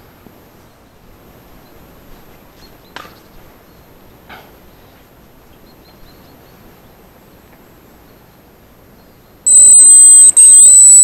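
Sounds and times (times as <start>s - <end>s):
high thin decoy whistle: 9.5s - 11.0s.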